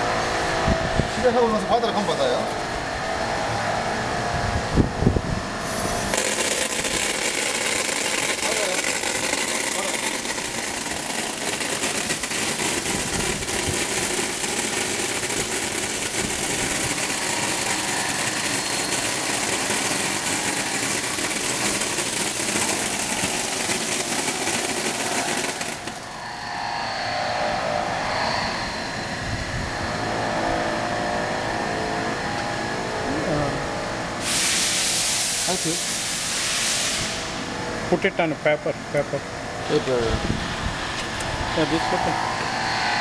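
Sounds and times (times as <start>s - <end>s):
compressed air jets hissing: 5.6s - 26.8s, 34.2s - 37.3s.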